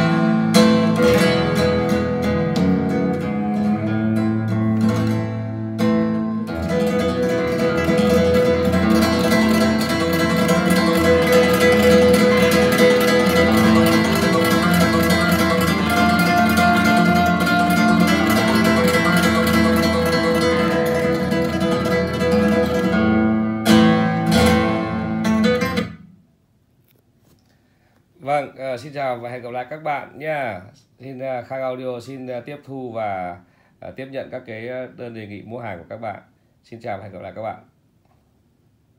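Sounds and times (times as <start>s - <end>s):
acoustic guitar music: 0.0s - 26.3s.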